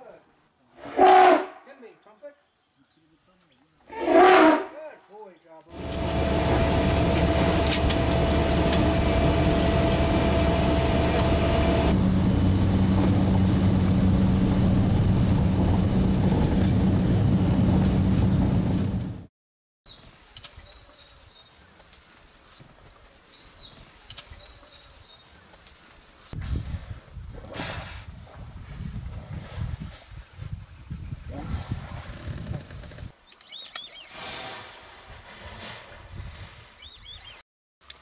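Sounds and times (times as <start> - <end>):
light aircraft engine and propeller: 5.7 - 19.2.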